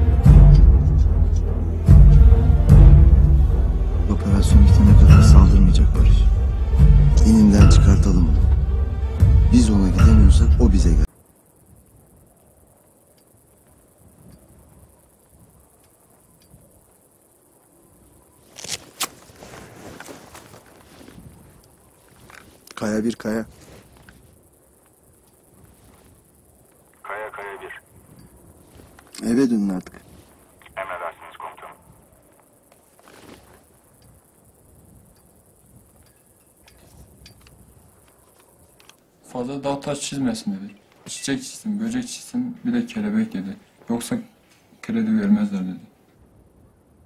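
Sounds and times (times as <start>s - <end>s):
faint insect chirps: 0.0s - 47.0s
soft rustling: 18.3s - 26.9s, 28.0s - 30.6s, 32.7s - 34.0s.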